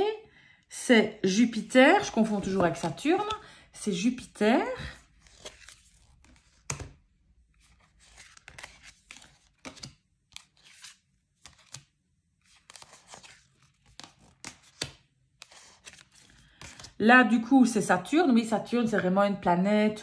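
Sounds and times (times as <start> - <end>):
cardboard cards being handled: 2.0 - 3.4, 4.9 - 17.0.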